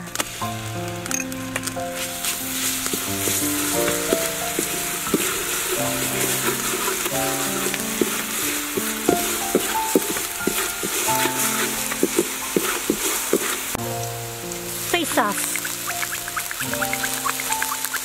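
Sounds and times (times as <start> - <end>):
background music: 0.0 - 18.0
food sizzling in hot oil: 0.0 - 18.0
spatula scraping and tapping wok: 0.9 - 13.8.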